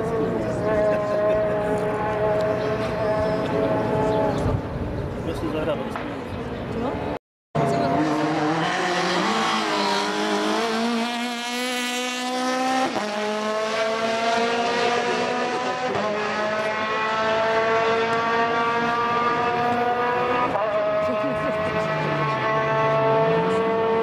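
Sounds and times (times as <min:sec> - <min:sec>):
rally car engine revving through gears: 0:07.6 - 0:24.0.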